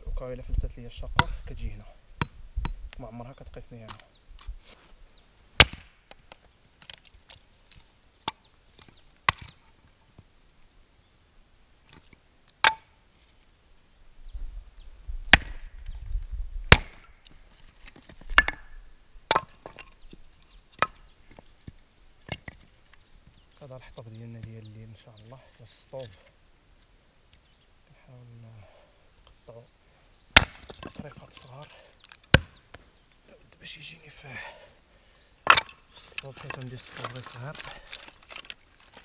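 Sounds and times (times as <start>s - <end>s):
hatchet chopping firewood: 1.2s - 1.4s, 5.6s - 7.4s, 8.3s - 9.6s, 11.9s - 12.9s, 15.3s - 15.7s, 16.7s - 17.3s, 18.2s - 18.7s, 19.3s - 19.9s, 20.8s - 21.4s, 30.3s - 31.2s, 32.0s - 32.6s, 35.4s - 35.8s
wood cracking: 5.6s - 9.8s, 15.3s - 15.7s, 16.7s - 23.0s, 30.3s - 32.8s, 35.4s - 39.0s.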